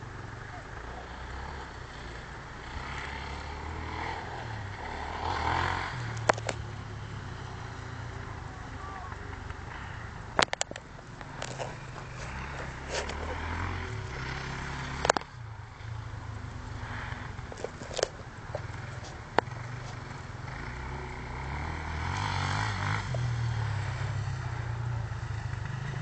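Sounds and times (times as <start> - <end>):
motorcycle engine droning: 0.0 - 26.0
sharp clicks: 10.4 - 13.4.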